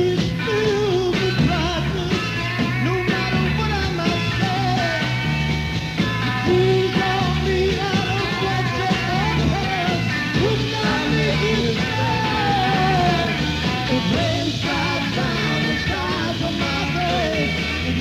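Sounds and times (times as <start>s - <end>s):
psychedelic rock band playing: 0.0s - 18.0s
person singing: 6.4s - 18.0s.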